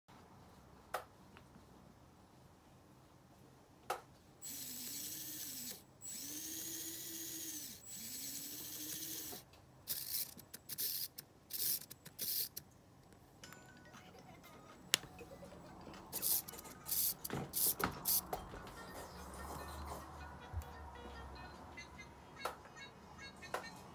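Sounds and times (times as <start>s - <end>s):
small electric motor whining: 4.4s - 12.6s, 16.1s - 18.2s.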